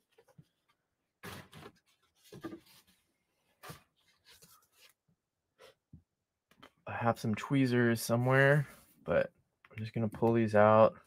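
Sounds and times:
paper rustling: 0.0s - 5.0s.

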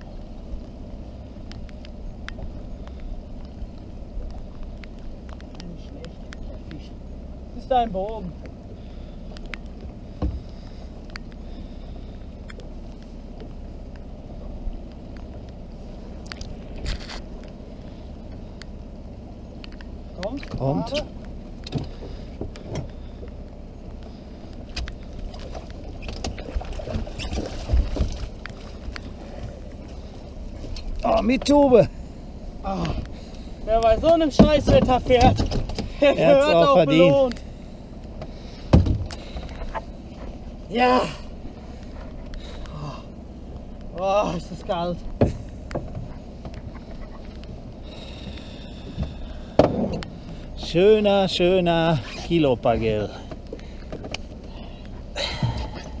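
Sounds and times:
low rumble of wind and water: 0.0s - 56.0s
outboard motor idling: 0.0s - 56.0s
fishing gear ticks and knocks: 1.4s - 6.9s, 19.6s - 31.7s, 32.8s - 36.1s, 37.3s - 40.4s, 43.5s - 50.7s, 53.3s - 56.0s.

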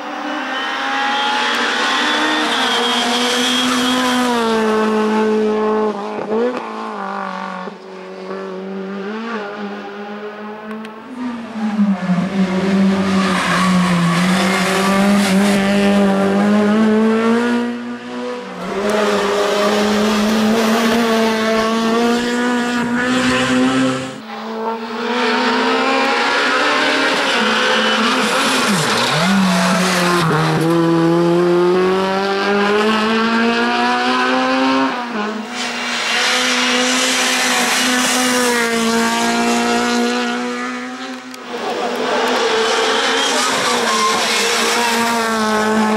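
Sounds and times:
race car engine revving: 0.0s - 45.9s.

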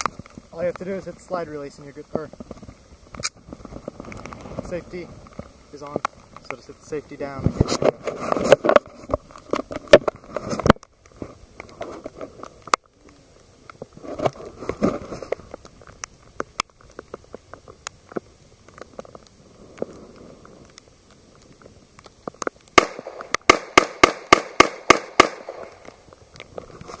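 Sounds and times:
pistol gunshots: 22.8s - 25.7s.

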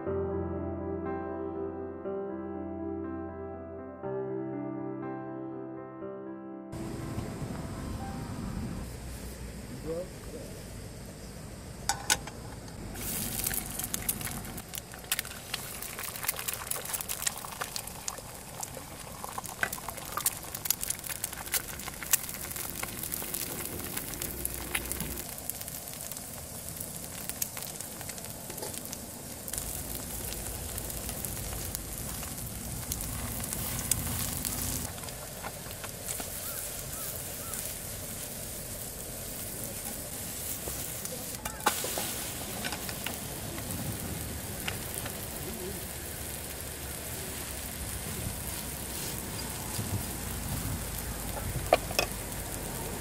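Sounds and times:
spitting oil crackling and popping: 11.8s - 53.0s
food sizzling in a frying pan: 12.8s - 53.0s.

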